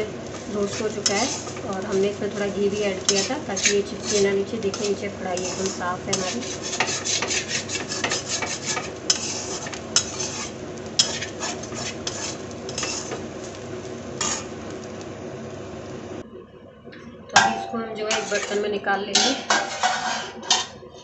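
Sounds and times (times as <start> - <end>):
steel spatula scraping pan: 0.3 - 13.3, 14.2 - 14.5, 18.0 - 20.8.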